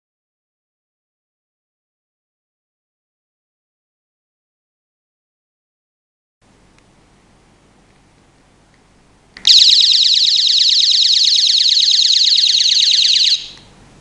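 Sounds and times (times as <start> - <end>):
shrill warbling electronic siren: 9.5 - 13.6.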